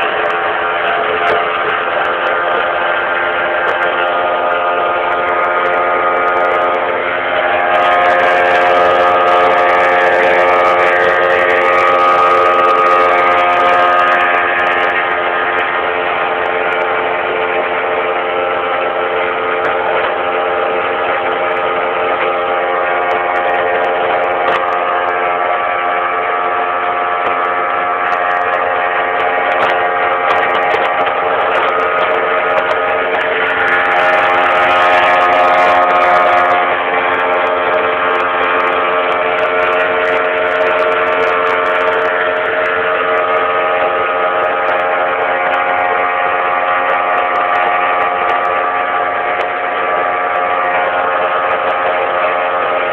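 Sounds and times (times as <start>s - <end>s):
outboard motor droning: 0.0s - 52.9s.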